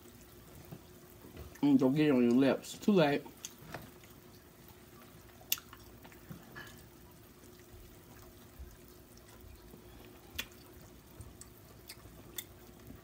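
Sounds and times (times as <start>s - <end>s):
faint steady hum: 0.0s - 13.0s
wet mouth sounds of eating: 5.4s - 5.9s, 10.0s - 12.6s.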